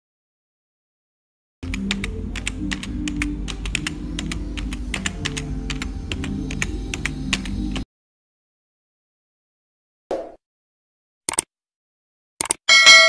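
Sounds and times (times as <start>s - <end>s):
computer keyboard typing: 1.6s - 7.8s, 11.3s - 11.5s, 12.4s - 12.6s.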